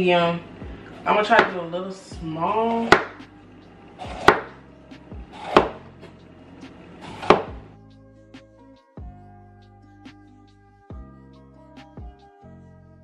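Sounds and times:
background music with held tones: 0.0s - 13.0s
knife knocking on board: 2.9s - 3.2s, 4.2s - 4.5s.

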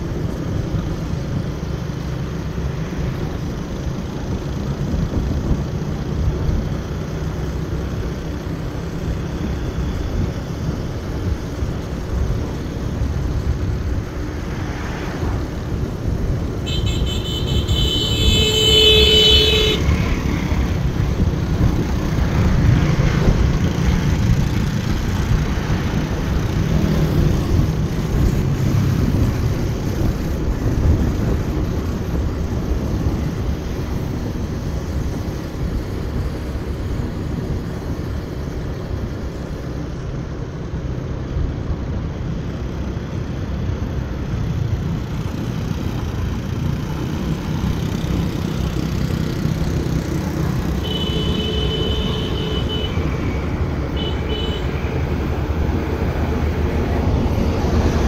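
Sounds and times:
wind and road rumble: 0.0s - 58.0s
vehicle horn: 16.6s - 20.1s, 50.7s - 55.0s.

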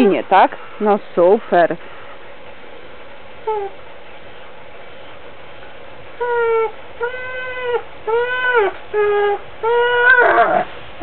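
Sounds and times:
dog whining: 3.4s - 3.8s, 6.2s - 10.7s.

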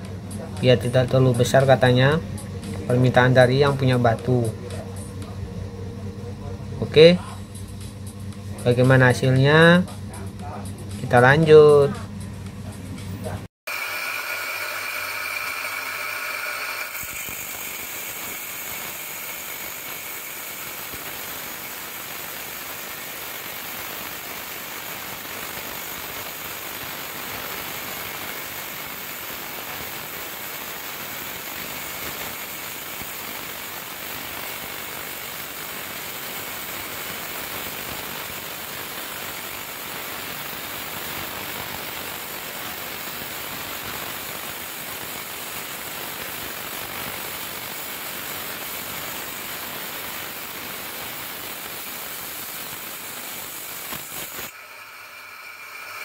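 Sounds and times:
bench grinder grinding stone: 13.7s - 56.0s.

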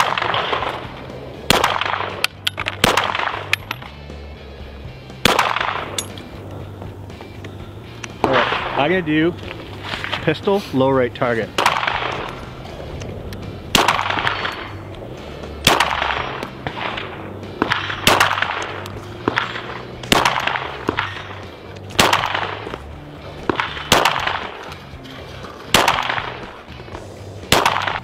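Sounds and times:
pistol shots with echo: 0.0s - 0.9s, 1.5s - 3.8s, 5.2s - 6.2s, 11.5s - 12.4s, 13.7s - 14.8s, 15.6s - 22.8s, 23.4s - 24.7s, 25.7s - 26.6s, 27.4s - 28.0s
background music: 0.0s - 28.0s.

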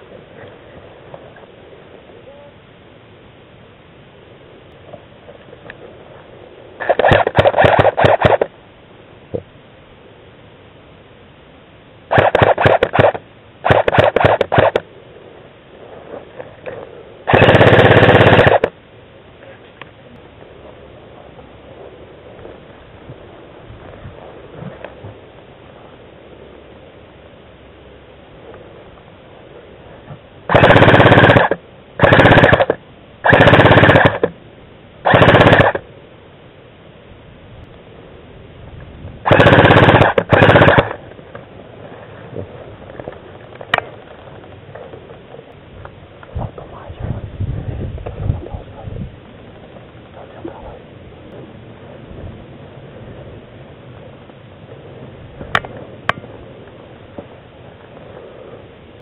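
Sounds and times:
airsoft guns firing: 6.8s - 8.5s, 12.1s - 14.8s, 17.3s - 18.7s, 30.5s - 34.3s, 35.0s - 35.9s, 39.2s - 41.0s.

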